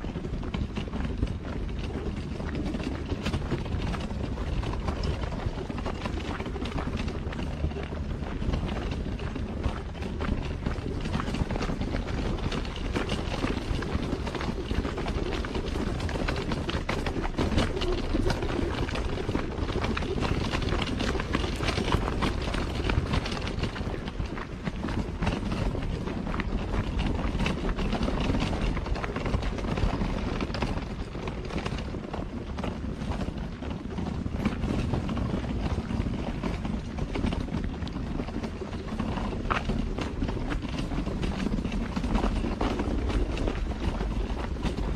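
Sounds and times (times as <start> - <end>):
steady low rumble: 0.0 - 44.9
wind buffeting microphone: 0.0 - 44.9.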